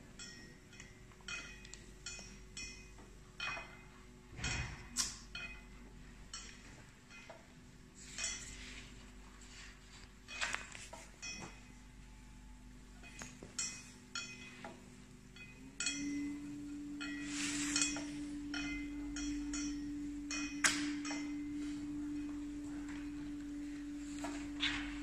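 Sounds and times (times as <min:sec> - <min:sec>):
light clinks and ticks: 0:00.2 - 0:08.7, 0:10.3 - 0:25.0
laminator motor hum: 0:14.0 - 0:25.0.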